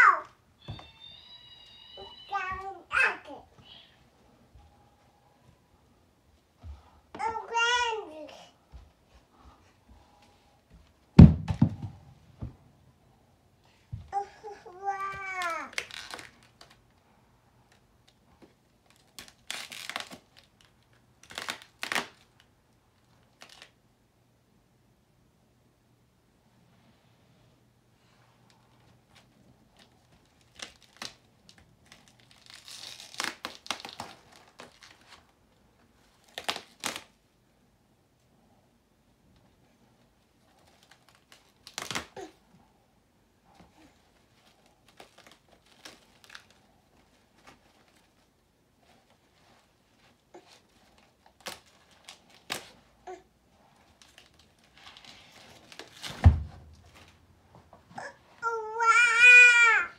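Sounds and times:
heavy thump: 11.2 - 12.6, 56.2 - 56.8
knocks against cardboard: 11.2 - 12.6
plastic wrap crinkling and tearing: 15.2 - 17.0, 18.8 - 23.8, 29.2 - 35.4, 36.0 - 37.2, 40.4 - 42.3, 43.6 - 52.8, 53.7 - 57.2.

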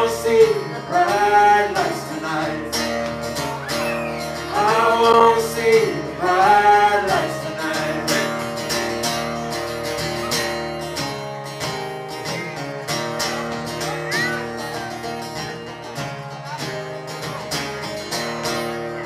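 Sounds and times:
person singing: 0.0 - 9.0
strummed acoustic guitar: 0.0 - 19.0.

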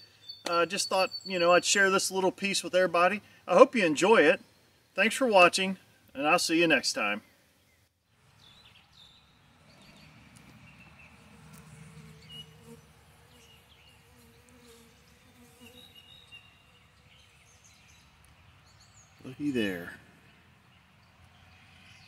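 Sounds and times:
birds chirping: 0.0 - 22.0
bee buzzing in flight: 10.0 - 17.4.

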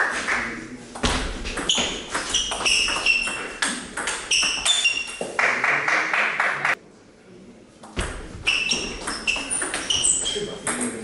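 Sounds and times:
shoes squeaking on floor: 1.5 - 5.4, 8.1 - 10.6.

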